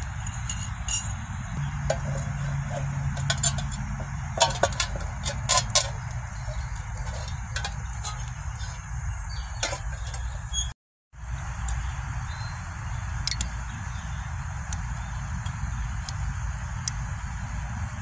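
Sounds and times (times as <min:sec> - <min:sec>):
low outdoor rumble: 0:00.0 - 0:18.0
sharp clinks: 0:00.2 - 0:01.3.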